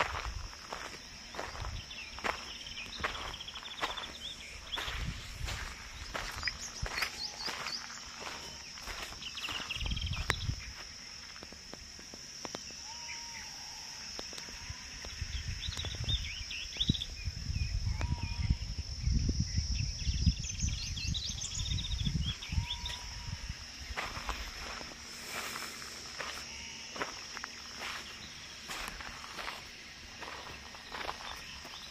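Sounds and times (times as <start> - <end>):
birds chirping: 0.0 - 11.7, 12.5 - 31.9
high insect drone: 0.0 - 31.9
low rumble on microphone: 9.5 - 10.8.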